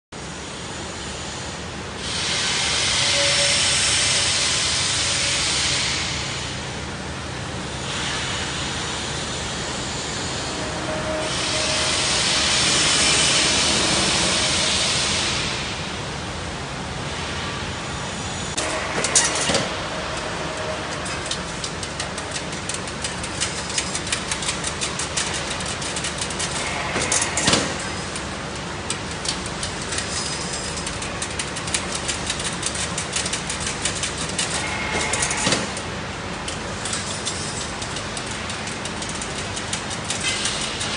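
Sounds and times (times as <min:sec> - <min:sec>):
loud hiss: 0:02.0 - 0:06.6, 0:07.8 - 0:15.9
fence machine drone and ticking: 0:18.5 - 0:40.9.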